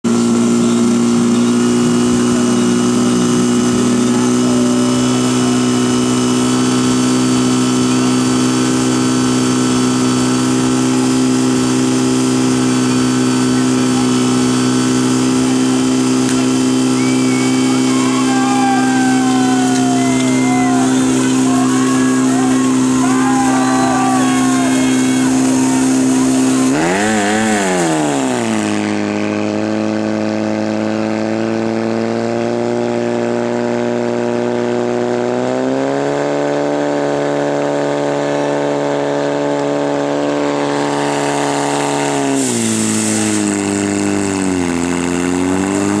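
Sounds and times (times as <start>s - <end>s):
pump engine running at high revs: 0.0s - 46.0s
people shouting: 16.7s - 28.6s.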